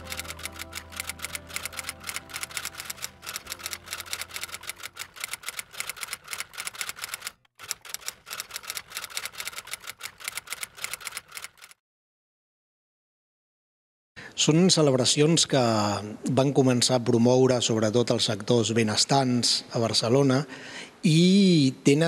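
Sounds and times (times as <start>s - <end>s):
low background music note: 0.0s - 4.9s
typewriter keystrokes clacking: 0.0s - 11.8s.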